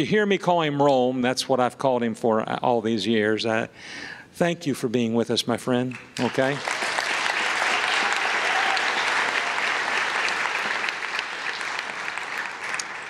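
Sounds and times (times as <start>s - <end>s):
congregation applauding: 5.9s - 13.0s.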